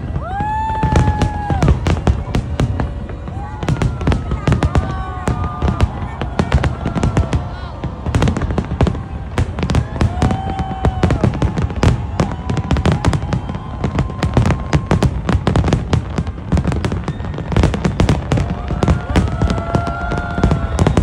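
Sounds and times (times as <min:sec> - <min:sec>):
fireworks booming and crackling: 0:00.0 - 0:21.0.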